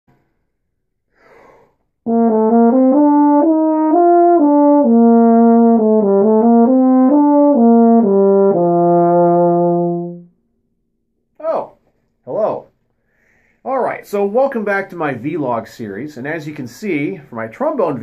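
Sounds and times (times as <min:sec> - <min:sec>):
faint breath: 0:01.1 - 0:01.9, 0:12.9 - 0:13.7
euphonium melody: 0:02.1 - 0:10.4.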